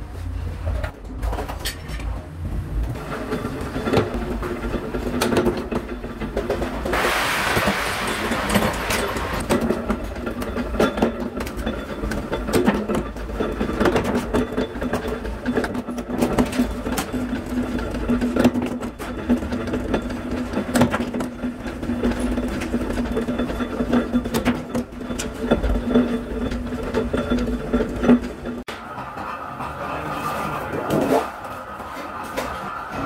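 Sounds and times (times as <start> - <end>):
metallic clanks and knocks: 2.9 - 29.9.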